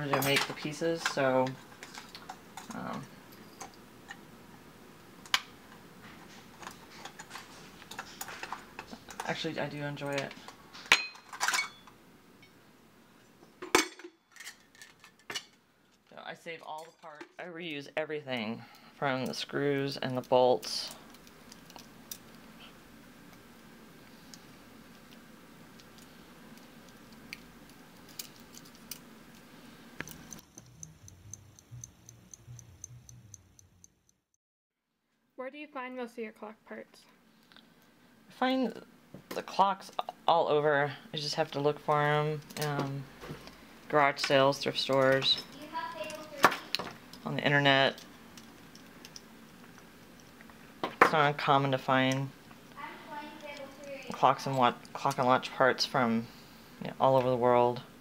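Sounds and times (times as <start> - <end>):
small metal parts clinking: 28.0 - 29.4
clock movement ticking: 30.0 - 34.2.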